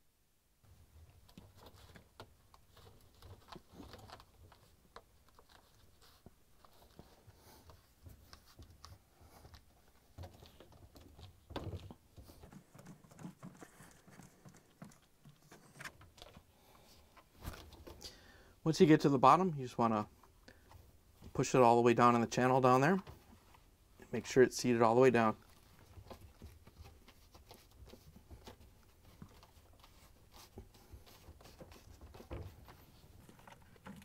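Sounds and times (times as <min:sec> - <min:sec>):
gloved hands rubbing and tapping: 0:25.2 - 0:34.0.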